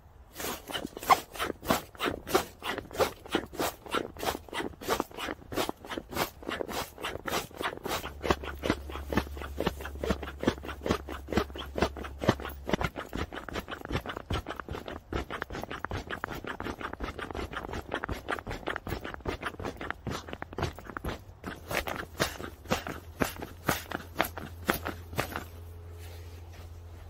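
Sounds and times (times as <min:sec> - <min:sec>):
nylon fabric rustling: 0:00.2 - 0:27.0
low hum: 0:19.8 - 0:27.0.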